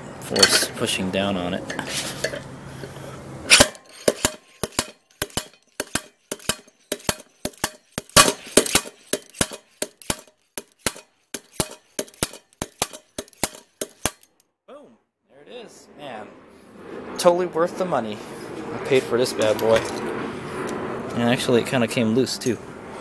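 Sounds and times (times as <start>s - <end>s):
slide hammer clanking metal: 0.2s - 0.9s, 1.6s - 2.5s, 3.5s - 14.4s.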